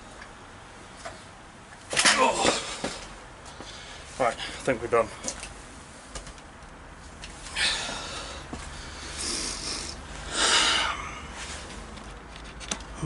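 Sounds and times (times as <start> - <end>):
hissy breaths: 7.4 - 11.8.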